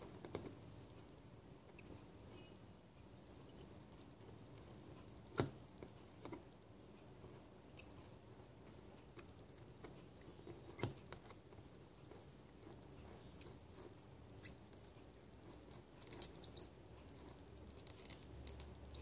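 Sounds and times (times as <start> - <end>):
soldering clicks and crackles: 14.5 - 19.0.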